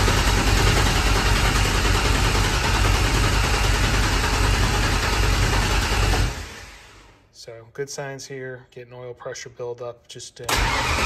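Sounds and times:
engine cranking without firing: 0:10.5 - 0:11.0.

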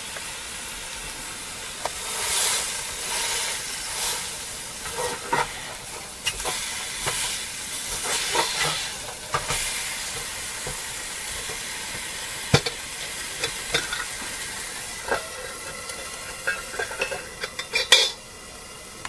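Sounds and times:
burger patty sizzling: 0:00.0 - 0:19.0
metal lid clanking on pot: 0:04.8 - 0:07.3, 0:07.9 - 0:18.2
spatula scraping metal pot: 0:04.8 - 0:10.8, 0:15.0 - 0:18.2.

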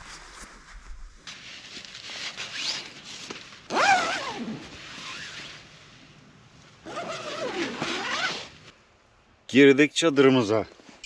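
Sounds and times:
tent zipper being pulled: 0:01.3 - 0:05.8, 0:06.8 - 0:08.7.

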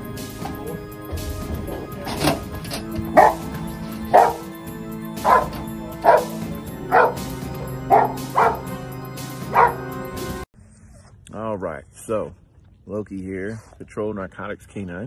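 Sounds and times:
background music with held notes: 0:00.0 - 0:10.5
dog barking: 0:03.1 - 0:04.5, 0:05.2 - 0:08.8, 0:09.4 - 0:10.0.

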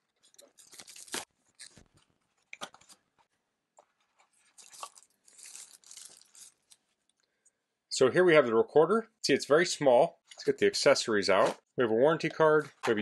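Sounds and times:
wrapping peeled off crinkling: 0:00.1 - 0:03.0, 0:04.2 - 0:07.2.

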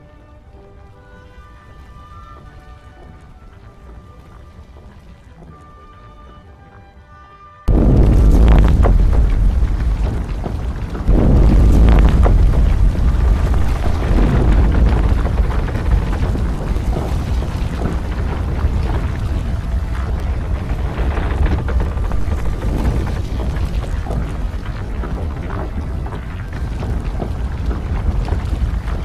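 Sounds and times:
deep rumble: 0:07.7 - 0:29.0
falling wooden planks clattering: 0:07.7 - 0:29.0.

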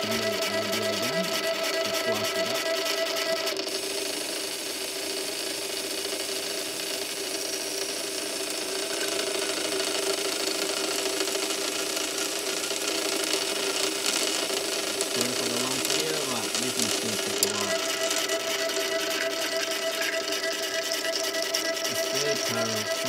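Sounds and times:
high-pitched tone: 0:00.0 - 0:03.6, 0:15.2 - 0:23.0
pumps humming: 0:00.0 - 0:23.0.

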